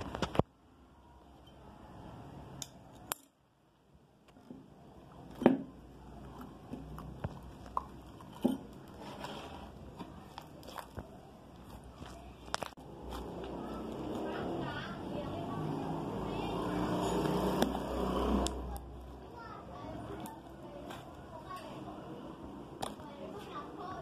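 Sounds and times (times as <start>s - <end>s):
slime squishing: 4.3s - 15.1s, 16.8s - 21.8s.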